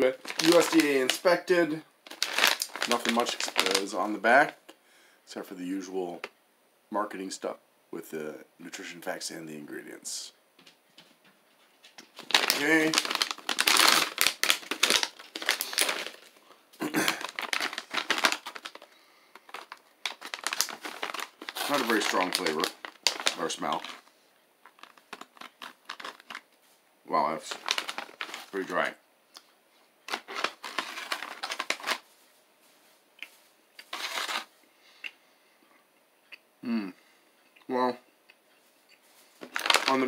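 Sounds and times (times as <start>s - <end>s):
plastic bag crinkling: 0.0s - 4.5s, 11.9s - 26.5s, 27.2s - 28.9s, 30.0s - 32.2s, 33.8s - 34.5s, 39.2s - 40.0s
crunching of eating dry jerky: 0.2s - 1.2s, 2.1s - 3.9s, 12.0s - 26.5s, 27.4s - 28.7s, 30.1s - 32.0s, 33.2s - 35.2s, 38.9s - 40.0s.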